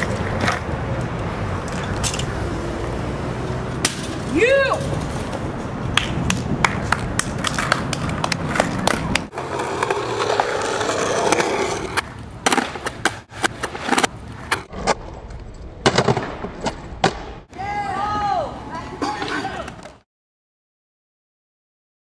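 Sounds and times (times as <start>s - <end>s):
skateboard clacking on ground: 0.0s - 2.4s, 6.0s - 17.4s, 18.9s - 20.0s
skateboard wheels rolling on concrete: 0.0s - 20.0s.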